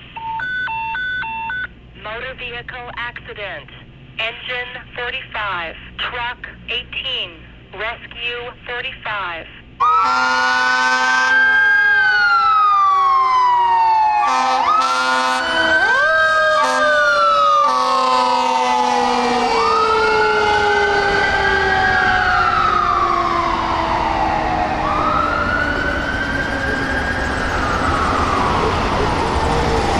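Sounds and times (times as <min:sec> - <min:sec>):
air horn blasts: 0:09.8 - 0:11.6, 0:14.2 - 0:15.7, 0:16.6 - 0:17.0, 0:17.6 - 0:19.4
electronic siren wailing: 0:09.8 - 0:29.9.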